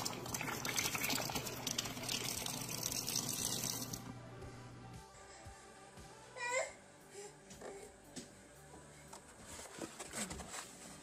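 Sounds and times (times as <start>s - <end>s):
faucet water running into sink: 0.0s - 4.0s.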